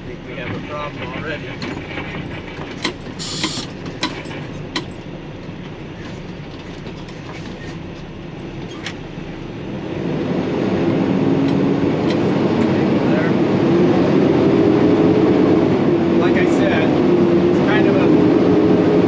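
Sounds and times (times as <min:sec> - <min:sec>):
truck engine and road rumble: 0:00.0 - 0:19.0
sharp rattles and clicks: 0:00.4 - 0:07.7.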